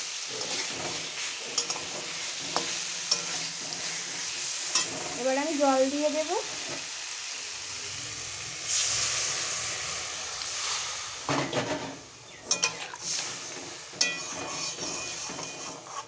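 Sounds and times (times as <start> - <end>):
water hissing in hot oil: 0.0 - 16.0
metal spatula scraping pan: 0.1 - 6.9, 10.6 - 16.0.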